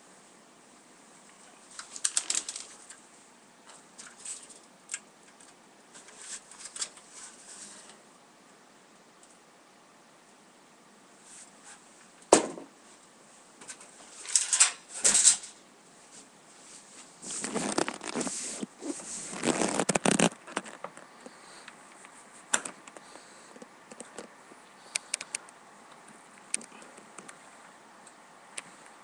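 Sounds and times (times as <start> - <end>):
handling rustling and rubbing: 1.1 - 8.1, 12.9 - 27.6
sharp clicks: 24.9 - 25.6.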